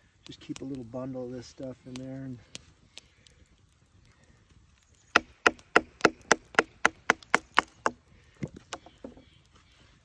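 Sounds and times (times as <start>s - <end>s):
wood splitting: 5.0s - 9.2s.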